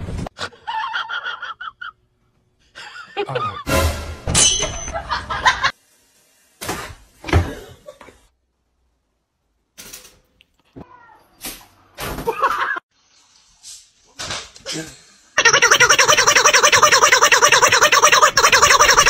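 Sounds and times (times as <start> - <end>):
people laughing: 2.8 - 3.7, 4.9 - 5.7
music: 3.7 - 4.3.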